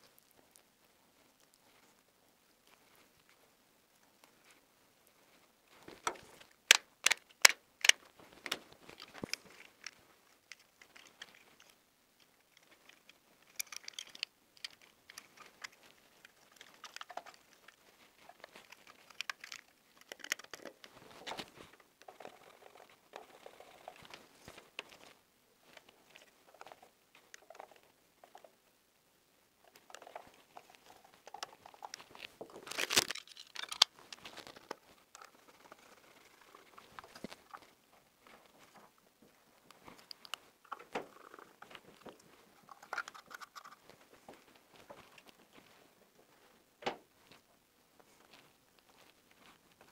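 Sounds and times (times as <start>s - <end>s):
wires rustling and crinkling: 0.0s - 28.7s, 29.4s - 49.9s
sharp clicks: 6.0s - 9.9s.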